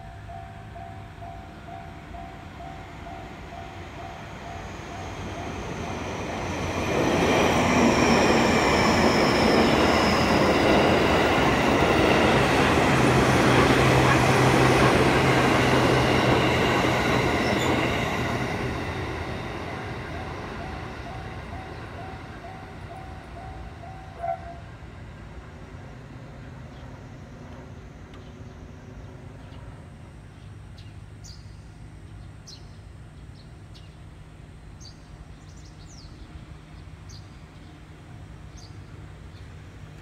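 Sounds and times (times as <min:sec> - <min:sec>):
train wheels on track: 0:00.0 - 0:30.6
level crossing warning bell: 0:07.7 - 0:25.0.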